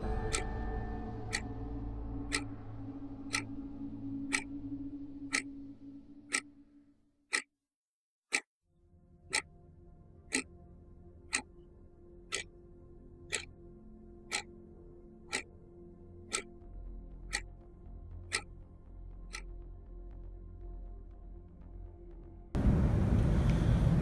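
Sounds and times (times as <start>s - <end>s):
low sustained music: 0.0s - 6.9s, 8.7s - 24.0s
clock ticking: 0.2s - 0.5s, 1.3s - 1.5s, 2.3s - 2.5s, 3.3s - 3.5s, 4.3s - 4.5s, 5.3s - 5.5s, 14.3s - 14.5s.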